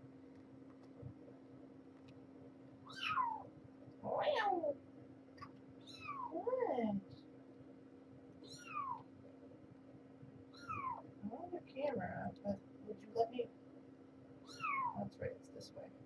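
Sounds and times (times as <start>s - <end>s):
kittens mewing: 2.9s - 4.8s, 8.4s - 9.1s, 10.5s - 11.1s, 14.5s - 15.1s.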